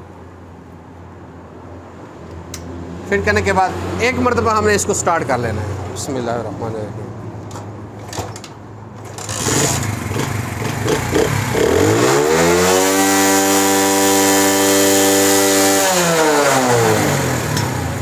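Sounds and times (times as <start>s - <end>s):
motorcycle engine revving: 9.0s - 18.0s.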